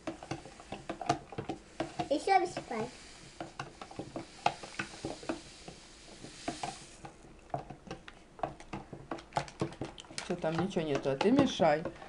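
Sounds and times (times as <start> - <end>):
powder pouring with soft hiss: 0.0 - 7.2
metal utensil tapping plastic tub: 7.5 - 12.0.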